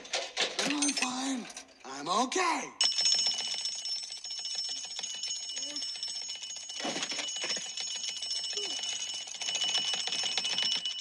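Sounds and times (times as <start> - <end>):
alarm clock bell ringing: 2.8 - 11.0.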